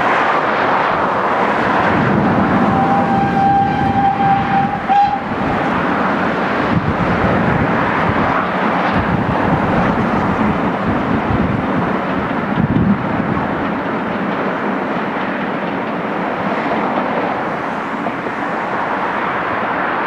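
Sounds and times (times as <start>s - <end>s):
wind on microphone: 0.0s - 19.8s
passing train rushing: 0.0s - 20.0s
steam locomotive whistle: 2.5s - 5.7s.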